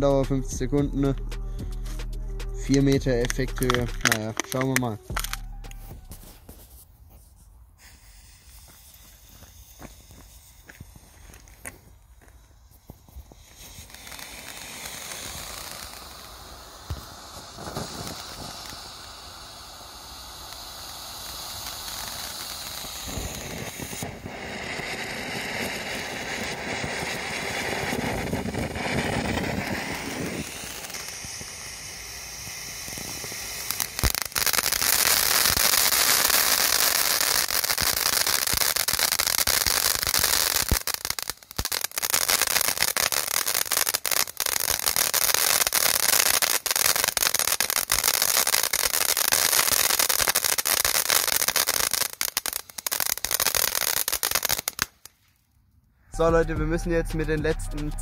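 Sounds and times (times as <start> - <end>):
dense crackling: 0.0 - 6.8
firework fountain hissing: 2.6 - 6.8, 7.7 - 55.1.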